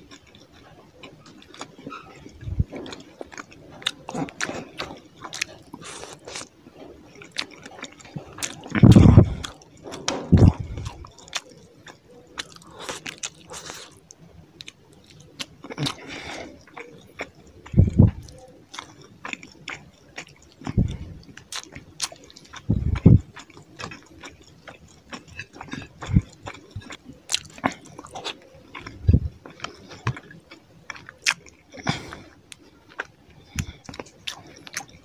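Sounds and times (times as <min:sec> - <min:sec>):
wet chewing: 0:00.0 - 0:35.0
deep thumps: 0:10.2 - 0:10.7.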